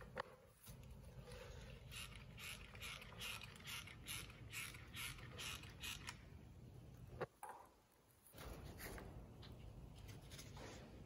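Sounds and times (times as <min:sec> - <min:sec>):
ratchet rasping: 0:01.8 - 0:06.2.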